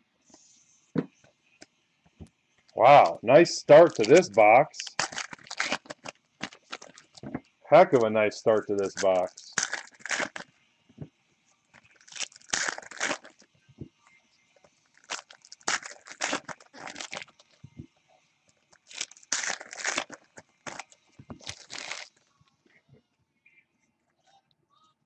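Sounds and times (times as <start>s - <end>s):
plastic wrappers crinkling and tearing: 2.7s - 10.5s, 11.7s - 13.5s, 14.9s - 17.6s, 18.7s - 22.2s.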